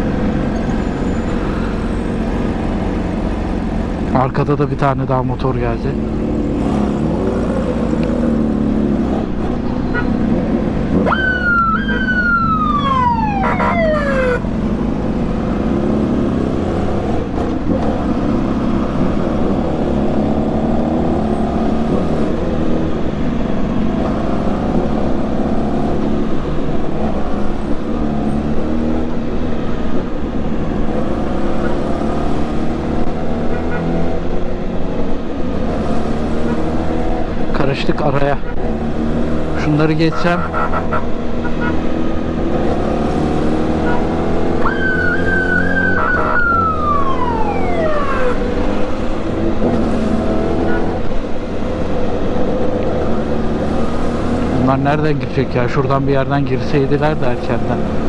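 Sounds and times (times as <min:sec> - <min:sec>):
siren falling wail: 0:11.0 - 0:14.5, 0:44.6 - 0:48.9.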